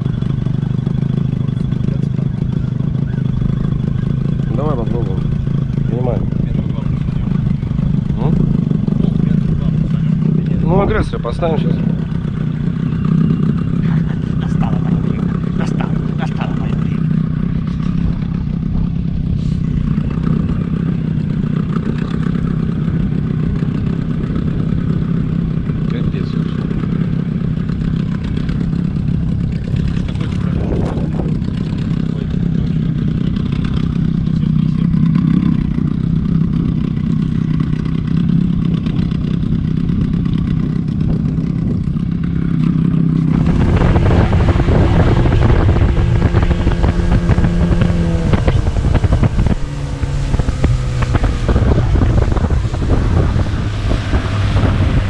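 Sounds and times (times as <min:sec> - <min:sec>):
outboard motor running: 0:00.0 - 0:55.0
wind and water rushing: 0:43.3 - 0:55.0.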